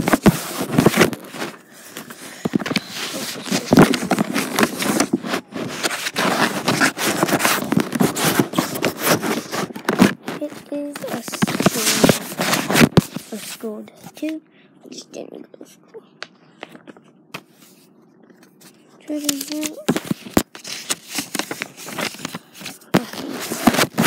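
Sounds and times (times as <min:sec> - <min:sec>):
handling noise crackling and scraping: 0:00.0 - 0:14.3, 0:16.6 - 0:24.0
paper and fabric rustling: 0:00.0 - 0:14.4, 0:16.6 - 0:24.0.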